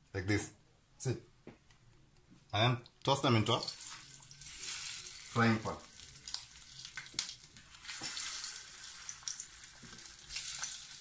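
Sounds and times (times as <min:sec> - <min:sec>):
sausage sizzling in a frying pan: 0:03.4 - 0:11.0.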